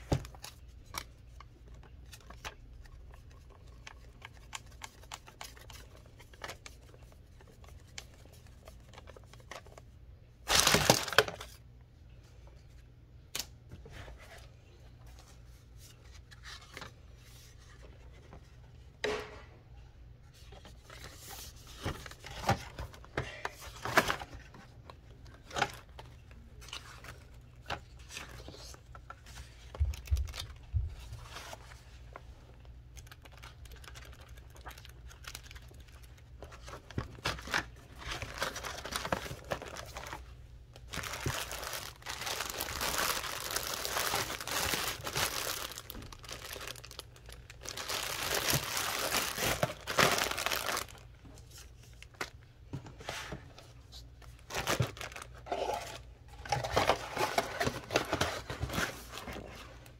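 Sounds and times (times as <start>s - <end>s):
plastic bag crinkling: 33.0s - 51.1s, 54.3s - 56.0s.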